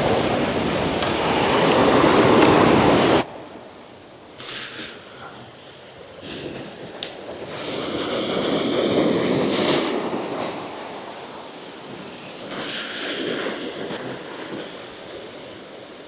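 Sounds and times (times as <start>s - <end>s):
ocean surf washing against rocks: 0.0s - 16.0s.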